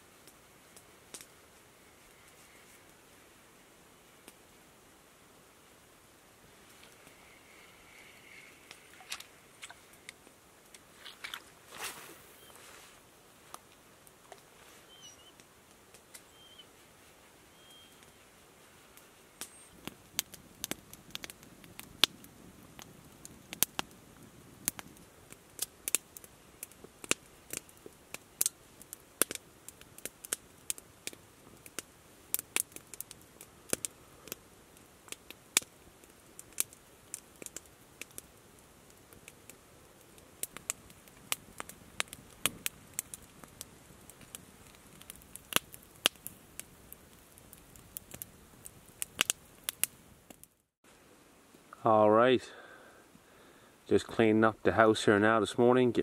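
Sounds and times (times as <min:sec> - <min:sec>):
raindrops dripping and tapping: 0:19.4 - 0:34.4, 0:35.0 - 0:38.3.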